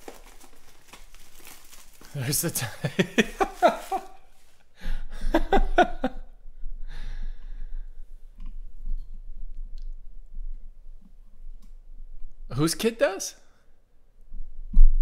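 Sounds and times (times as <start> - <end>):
man exhaling breathily: 6.8 - 8.0.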